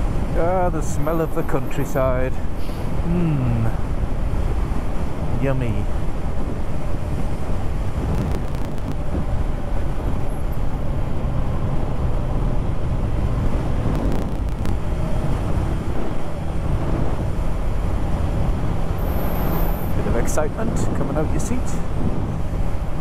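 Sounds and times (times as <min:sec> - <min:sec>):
wind and road noise: 0:00.0 - 0:23.0.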